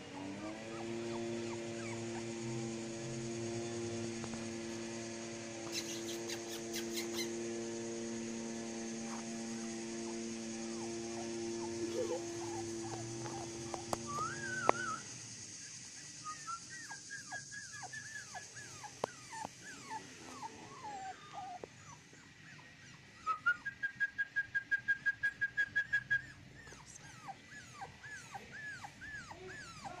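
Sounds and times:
puppies whimpering and whining: 0.0s - 5.0s, 5.6s - 8.2s, 9.0s - 15.2s, 16.2s - 24.2s, 25.1s - 30.0s
steady hum: 0.0s - 30.0s
short high puppy cries: 5.6s - 7.5s, 10.8s - 15.0s, 26.2s - 30.0s.

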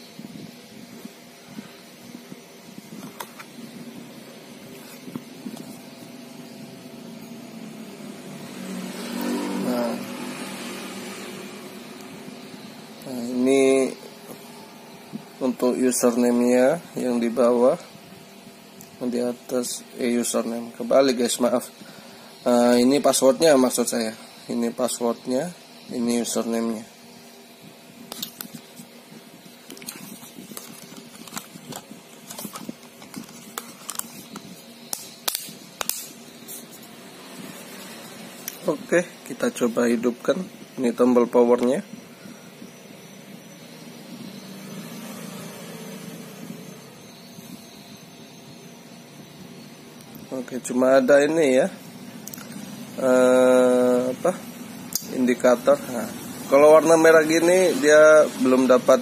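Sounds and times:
faint steady hum: 0.0s - 59.0s
passing vehicle engine: 7.6s - 12.6s, 44.2s - 47.0s.

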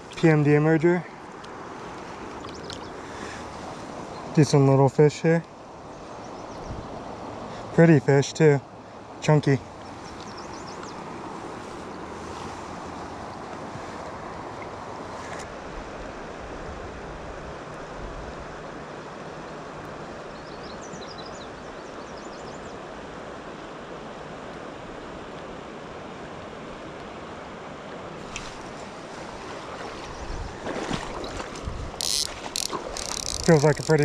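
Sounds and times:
river water rushing over rocks: 22.9s - 34.0s.

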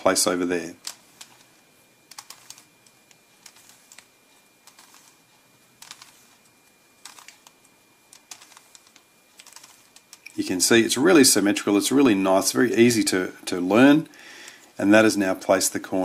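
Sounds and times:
puzzle cube clicking: 2.1s - 5.2s, 5.8s - 6.4s, 7.0s - 10.4s.

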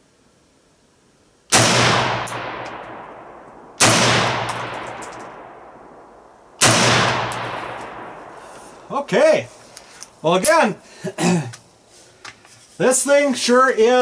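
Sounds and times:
rifle shots with echo: 1.5s - 8.9s.

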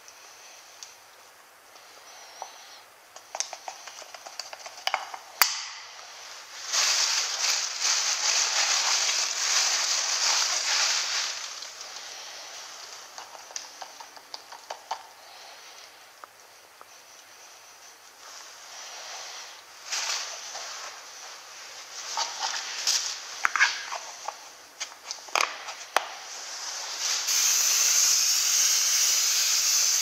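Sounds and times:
sharp snap: 5.4s - 5.9s
plastic bag crinkling: 5.9s - 15.1s.

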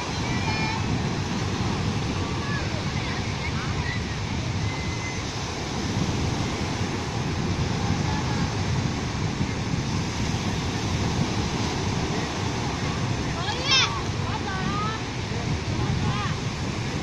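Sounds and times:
waves breaking on sandy beach: 0.0s - 17.0s
wind on microphone: 0.0s - 17.0s.

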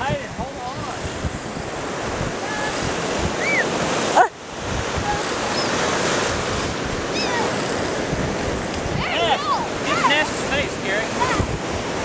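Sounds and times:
ocean surf washing: 0.0s - 12.0s
wind on microphone: 0.0s - 12.0s
high-pitched calls: 3.4s - 4.3s, 5.1s - 5.8s, 7.1s - 7.9s.

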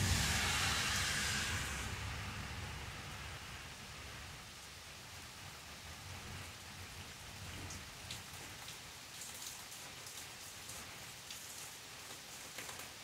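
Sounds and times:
steady rain hiss: 0.0s - 13.0s
raindrops ticking close by: 3.9s - 13.0s.

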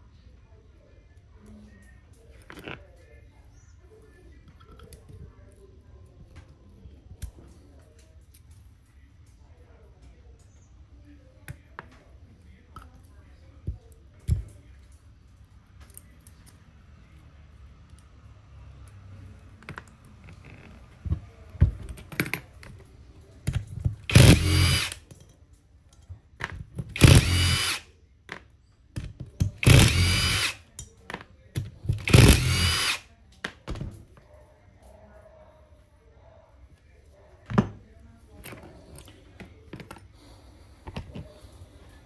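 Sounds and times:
cordless drill whirring: 24.1s - 25.0s, 27.0s - 27.8s, 29.6s - 30.6s, 31.9s - 33.0s.

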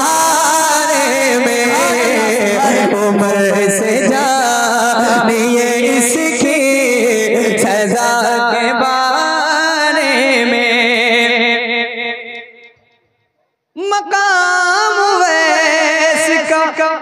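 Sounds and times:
man singing unaccompanied: 0.0s - 12.2s, 13.8s - 17.0s.

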